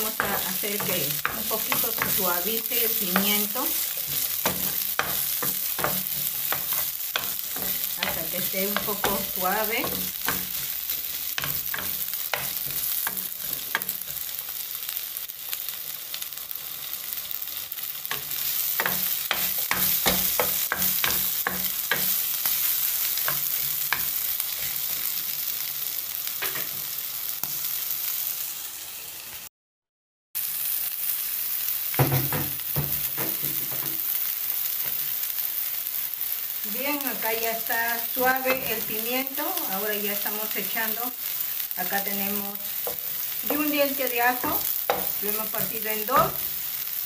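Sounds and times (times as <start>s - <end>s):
wooden spoon scraping a pan: 0.0s - 14.3s
vegetables sizzling in oil: 0.0s - 29.5s, 30.4s - 47.0s.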